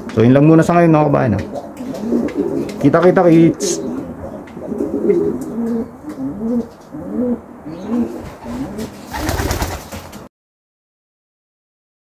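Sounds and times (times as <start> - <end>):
pigeons cooing: 0.0 - 9.8.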